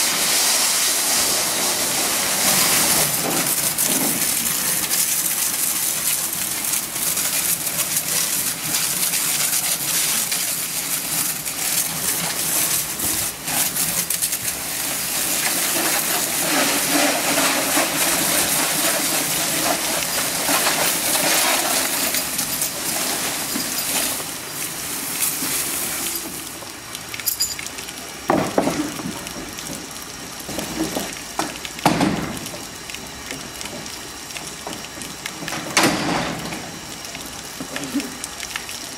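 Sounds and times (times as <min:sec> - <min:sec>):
pressure washer spraying: 0:00.0 - 0:26.6.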